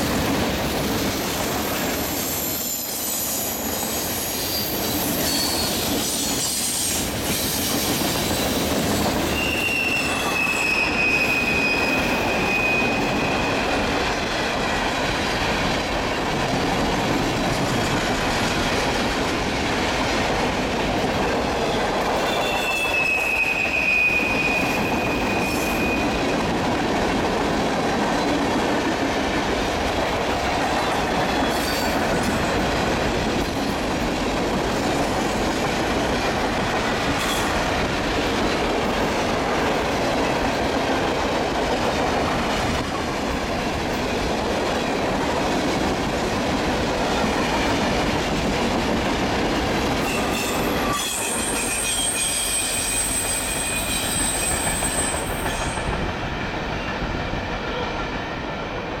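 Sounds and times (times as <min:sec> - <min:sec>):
freight train wheels rumbling: 0:00.0 - 0:59.0
high wheel squeal: 0:01.7 - 0:13.8, 0:22.2 - 0:26.2, 0:50.1 - 0:56.0.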